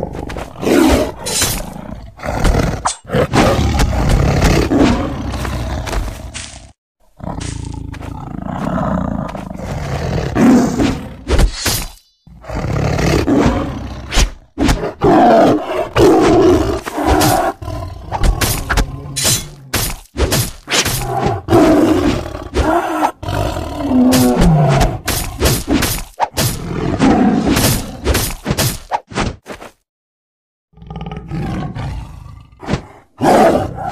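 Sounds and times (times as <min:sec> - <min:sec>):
big cats growling and roaring: 0:00.0 - 0:11.3, 0:12.3 - 0:19.9, 0:20.9 - 0:25.4, 0:30.8 - 0:33.9.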